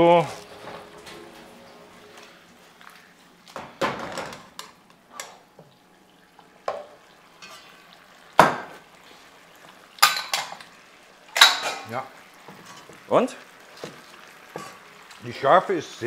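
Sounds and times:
faint sizzling in wok: 0:04.6 - 0:16.0.

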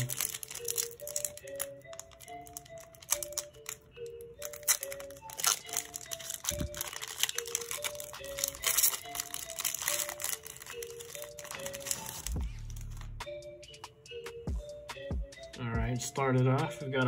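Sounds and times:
foil wrapper crinkling and tearing: 0:00.0 - 0:13.2
soft background music: 0:00.0 - 0:17.0.

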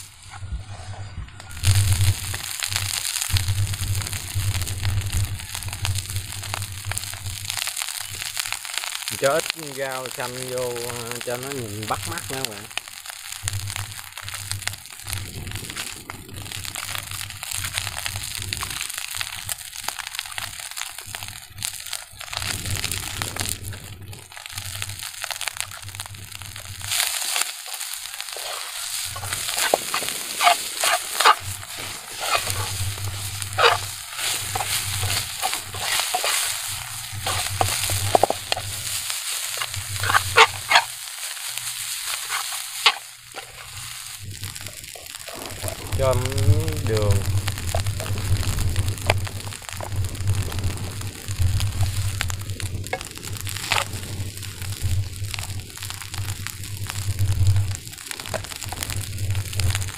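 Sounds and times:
rice sizzling in a frying pan: 0:00.0 - 0:59.9
utensil scraping and knocking pan: 0:28.3 - 0:40.9, 0:42.0 - 0:43.8.

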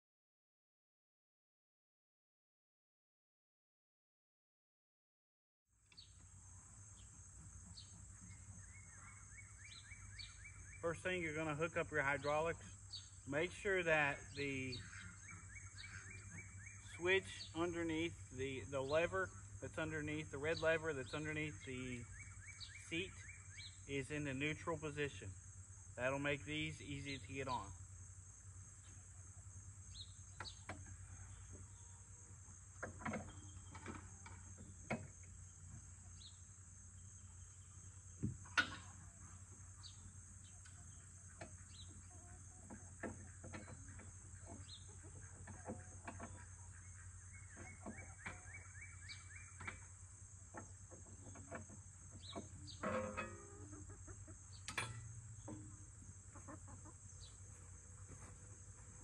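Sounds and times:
high drone of insects: 0:06.0 - 0:59.0
hens clucking: 0:40.7 - 0:48.6, 0:50.6 - 0:54.7, 0:55.4 - 0:59.0.

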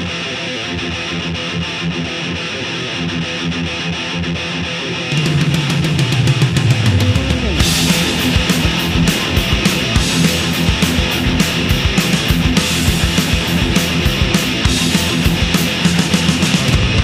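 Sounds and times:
heavy rock music with electric guitar: 0:00.0 - 0:17.0
driving drumbeat: 0:05.1 - 0:17.0.

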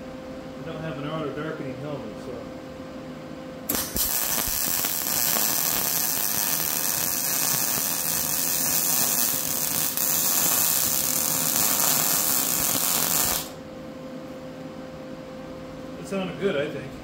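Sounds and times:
welding arc noise: 0:03.7 - 0:13.6.

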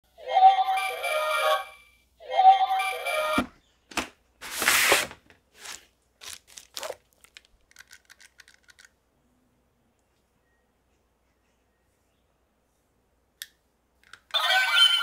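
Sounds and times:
cardboard packaging rustling: 0:04.4 - 0:08.9.

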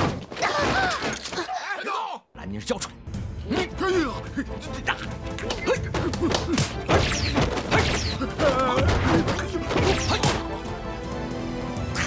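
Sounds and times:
background music: 0:02.3 - 0:12.0
punches and body impacts: 0:05.4 - 0:10.5.

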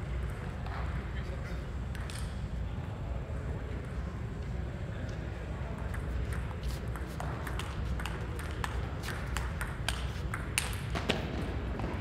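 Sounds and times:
ping pong ball clicking: 0:05.9 - 0:11.0.

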